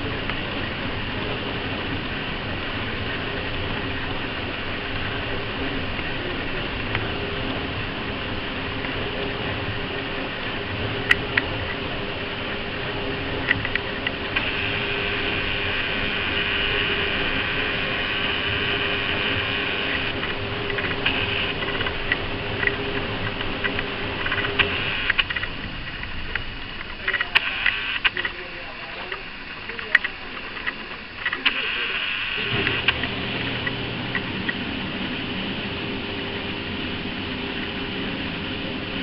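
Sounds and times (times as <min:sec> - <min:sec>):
electric fan whirring: 0:00.0 - 0:39.0.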